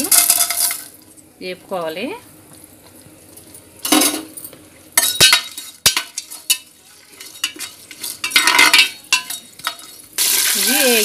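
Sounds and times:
light sizzle of frying oil: 0.0 - 11.0
spoon scraping and clinking on pot: 5.0 - 10.1.

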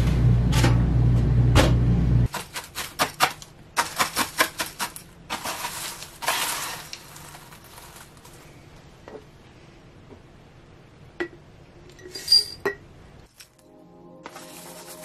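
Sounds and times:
granola and paper crunching: 2.3 - 8.6, 14.2 - 15.0.

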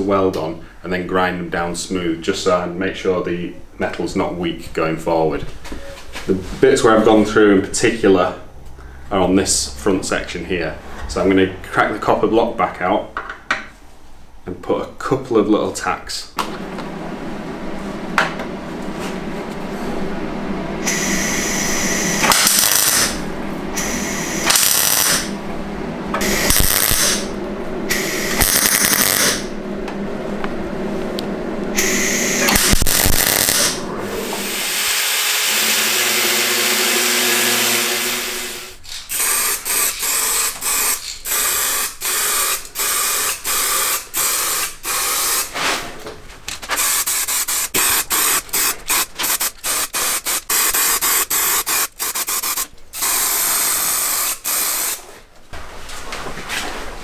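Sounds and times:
welder crackling bursts: 20.8 - 23.2, 23.8 - 25.3, 26.2 - 29.5, 31.7 - 45.5, 46.7 - 55.1
aerosol can spraying: 46.8 - 55.0.

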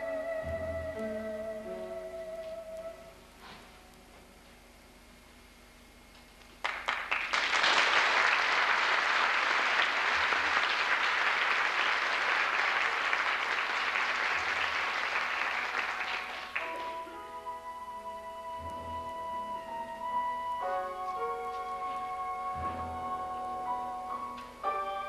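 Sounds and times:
orchestra playing: 0.0 - 3.2, 15.5 - 25.0
audience applauding: 6.6 - 17.1.

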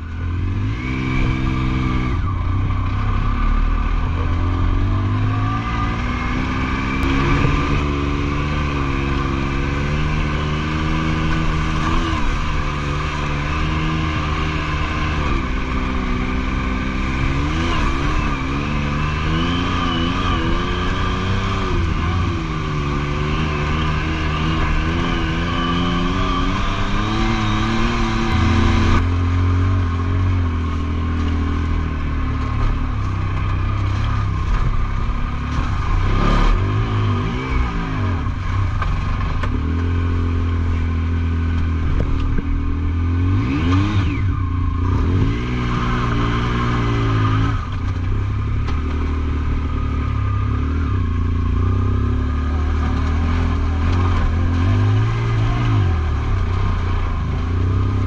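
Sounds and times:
engine revving inside vehicle cab: 0.0 - 58.0.

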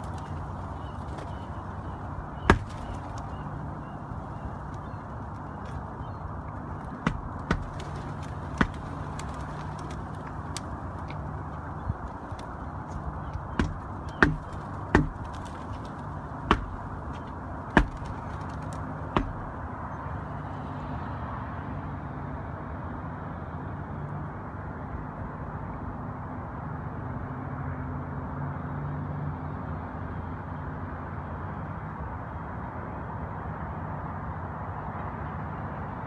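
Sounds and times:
background rush: 0.0 - 20.9
sharp knocks: 2.5 - 2.9, 6.9 - 7.9, 8.5 - 8.9, 13.5 - 15.5, 16.5 - 18.5, 19.1 - 19.6.

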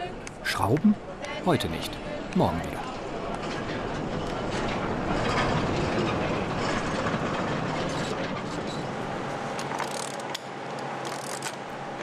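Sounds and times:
sliding door rumbling on rail: 2.9 - 10.3.

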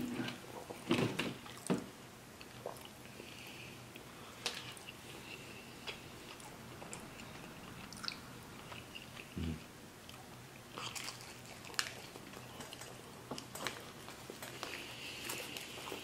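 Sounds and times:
chewing and biting pizza: 5.9 - 16.0.

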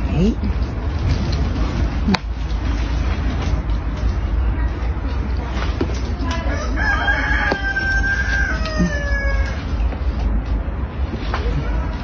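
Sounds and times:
steady low rumble: 0.0 - 12.0
rooster crowing: 6.5 - 9.8.

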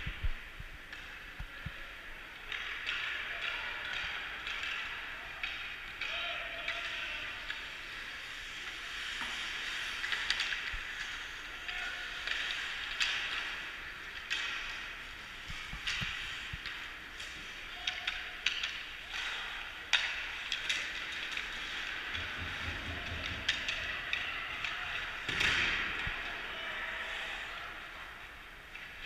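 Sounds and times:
hockey sticks and puck clacking: 0.0 - 29.0
skate blades scraping ice: 7.6 - 17.6.

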